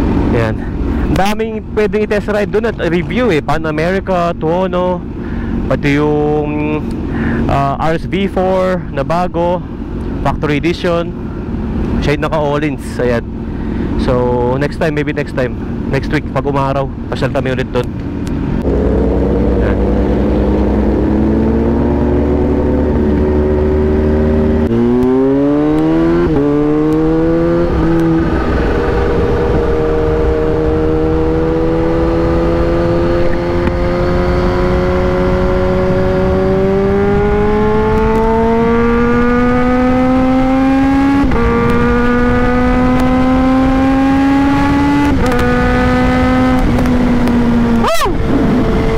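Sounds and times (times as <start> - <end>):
motorcycle engine accelerating: 18.1 - 48.9.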